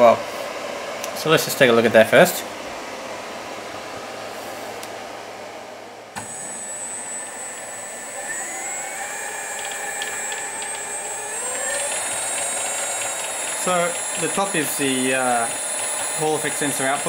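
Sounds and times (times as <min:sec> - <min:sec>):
electric motor whine rising: 0:06.2 - 0:17.0.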